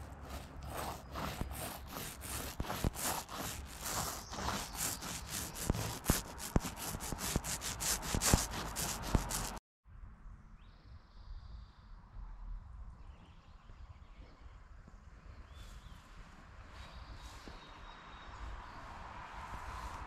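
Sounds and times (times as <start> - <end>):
paint roller rubbing on wood: 0.0 - 9.6.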